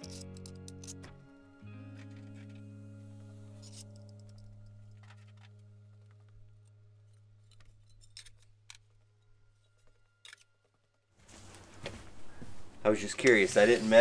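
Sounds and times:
faint background music: 0.0s - 11.2s.

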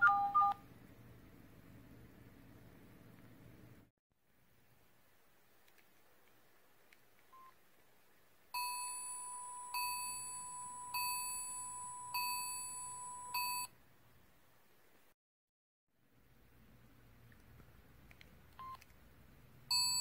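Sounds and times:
electronic beep tone: 8.6s - 13.7s
faint short beep: 8.6s - 13.7s.

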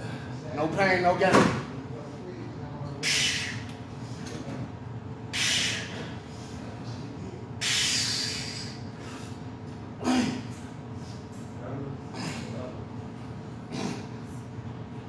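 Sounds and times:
man's hissing exhalations: 5.4s - 6.0s, 7.6s - 9.4s
man grunting: 10.0s - 10.5s.

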